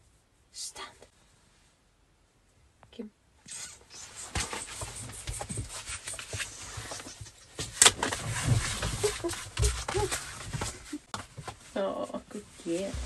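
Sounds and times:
jacket and fur rustling: 8.1 - 13.0.

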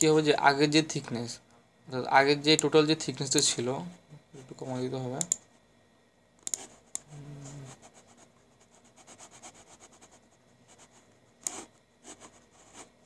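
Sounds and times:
mouse clicks: 5.2 - 5.4
mouse rubbing on desk: 6.6 - 13.0.

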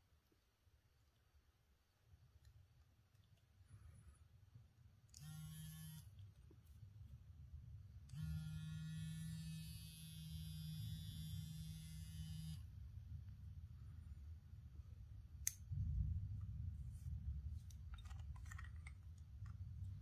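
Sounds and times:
razor motor buzzing: 5.2 - 6.1, 8.1 - 12.6.

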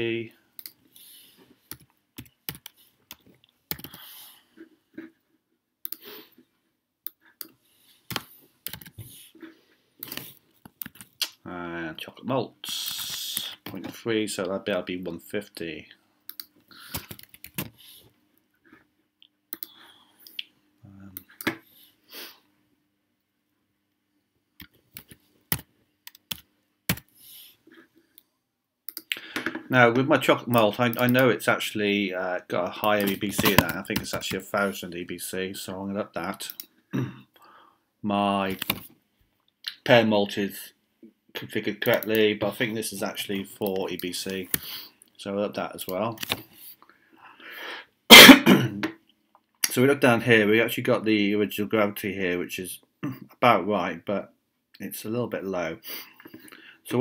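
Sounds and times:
computer keyboard keys tapping: 1.7 - 4.0, 8.1 - 9.0, 16.3 - 17.7
keyboard typing: 1.7 - 4.0, 7.1 - 9.1, 10.0 - 11.2, 16.3 - 17.8, 24.6 - 27.2, 38.5 - 38.9.

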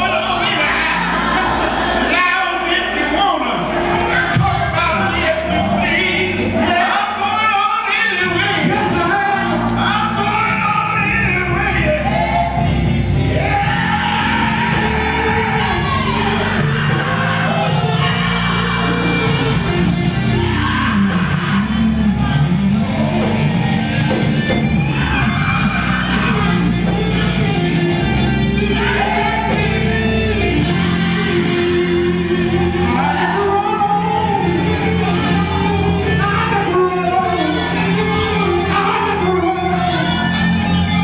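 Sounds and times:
keyboard playing: 0.0 - 41.0
lead singer singing: 0.0 - 41.0
drum kit: 8.2 - 41.0
electric bass guitar: 8.2 - 41.0
female backing singers: 11.6 - 23.9.

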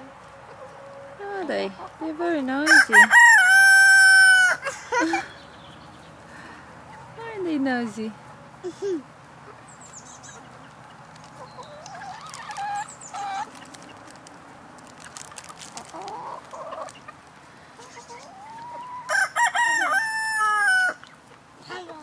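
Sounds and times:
rooster crowing loudly: 2.7 - 4.8, 19.0 - 21.0
chickens clucking softly: 9.2 - 14.1, 15.7 - 22.0.

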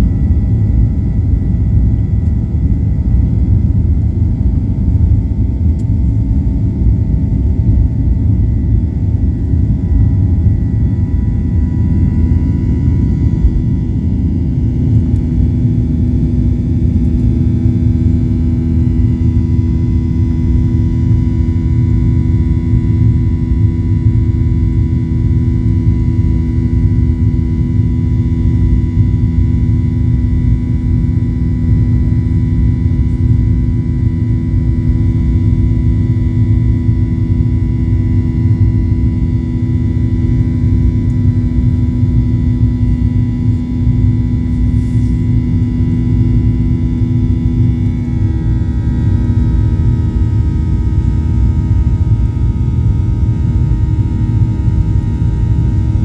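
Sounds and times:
airliner engines rumbling: 0.0 - 56.0.

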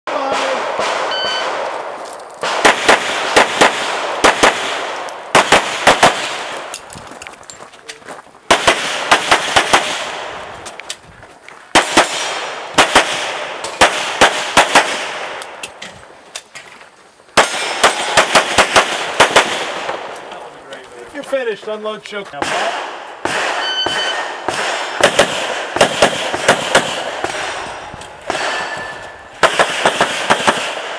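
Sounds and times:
rapid pistol fire: 2.4 - 6.4, 8.5 - 10.3, 11.8 - 15.4, 17.4 - 20.1, 22.4 - 28.6, 29.4 - 30.9.

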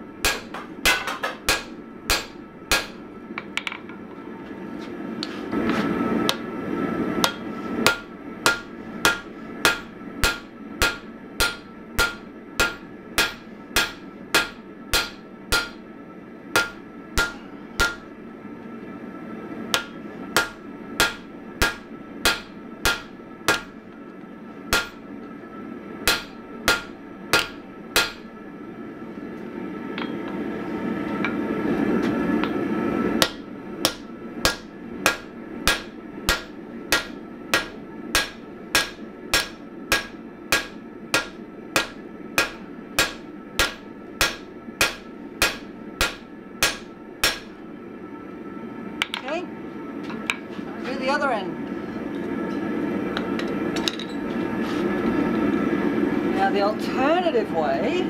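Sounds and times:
hammer striking steel on anvil: 0.2 - 3.0, 7.2 - 15.8, 16.5 - 18.1, 19.7 - 23.8, 24.7 - 25.0, 26.0 - 28.3, 33.2 - 47.6.

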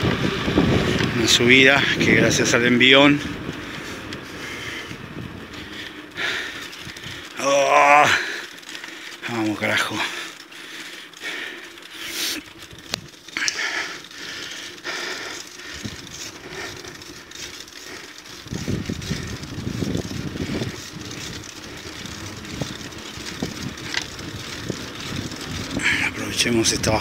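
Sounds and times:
wind rumble on microphone: 0.0 - 7.3, 15.6 - 27.0
bicycle road noise: 0.0 - 27.0
person breathing hard: 3.6 - 7.4, 8.1 - 9.2, 10.0 - 12.5, 13.3 - 19.5, 20.2 - 22.1.

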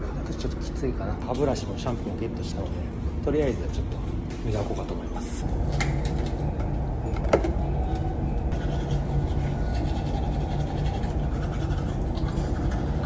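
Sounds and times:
engine hum: 0.0 - 13.0
teeth brushing: 8.5 - 13.0.

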